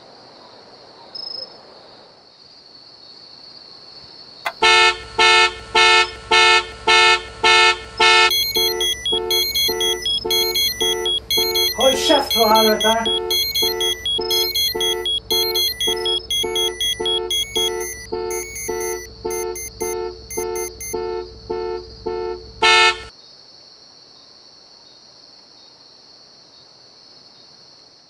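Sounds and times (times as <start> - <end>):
electronic alarm pulses: 4.5 - 23.1.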